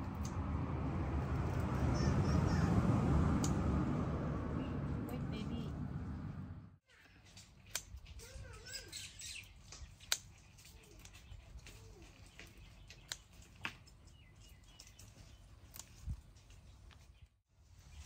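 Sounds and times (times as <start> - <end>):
scissors snipping stems: 7.3 - 8.7, 9.6 - 14.0, 14.6 - 17.0.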